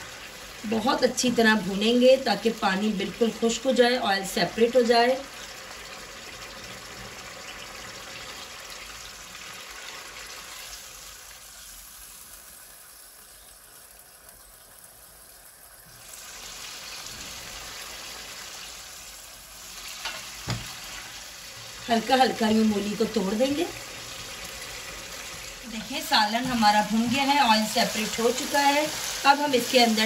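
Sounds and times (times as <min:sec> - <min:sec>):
curry sizzling in a pan: 0:00.0 - 0:30.0
spatula knocking on pan: 0:20.0 - 0:20.7.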